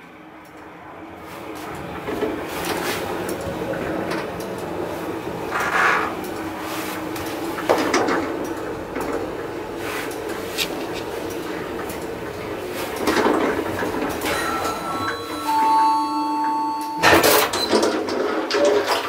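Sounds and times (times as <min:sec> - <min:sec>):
elevator humming: 0:00.0 - 0:19.0
elevator doors clattering open: 0:01.4 - 0:19.0
steady electric tones: 0:13.6 - 0:17.8.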